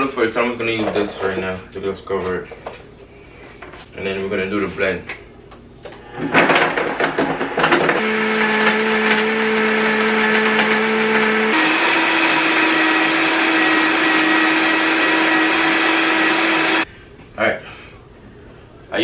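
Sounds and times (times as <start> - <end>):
blender blending thick mix: 6.2 - 16.9.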